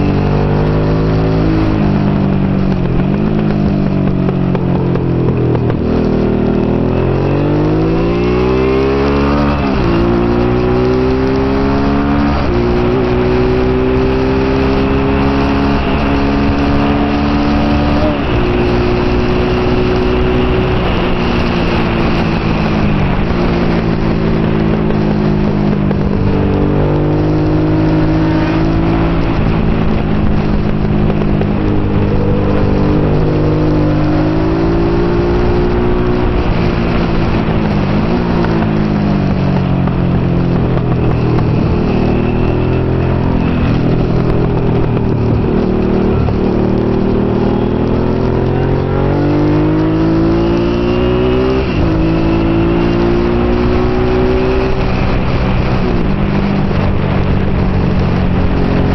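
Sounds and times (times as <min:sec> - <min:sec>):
motorcycle engine at racing speed: 0:00.0 - 0:58.9
wind rushing: 0:00.0 - 0:58.9.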